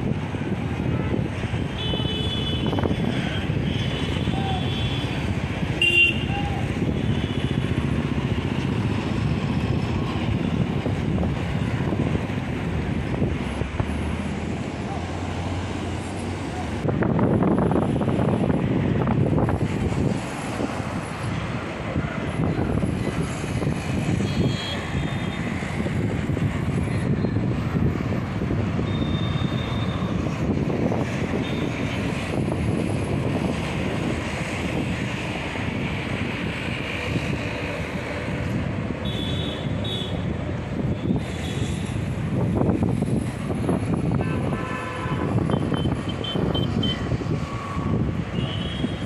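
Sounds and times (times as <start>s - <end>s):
city road traffic rumble: 0.0s - 49.0s.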